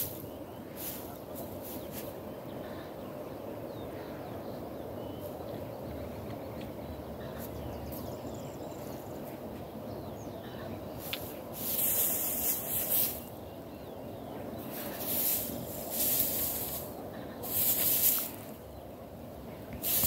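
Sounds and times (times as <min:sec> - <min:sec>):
dry hay rustling: 0:00.0 - 0:02.8, 0:10.4 - 0:20.0
outdoor background noise: 0:00.0 - 0:20.0.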